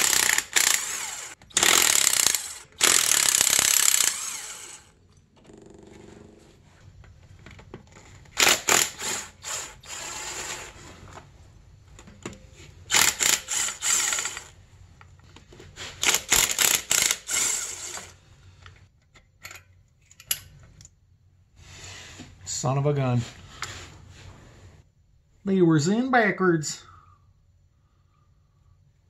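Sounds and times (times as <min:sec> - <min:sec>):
cordless impact driver hammering: 0:00.0 - 0:04.8, 0:08.4 - 0:10.6.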